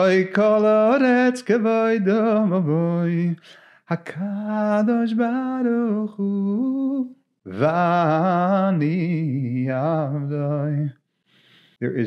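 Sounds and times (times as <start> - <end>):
man singing unaccompanied: 0.0 - 11.0.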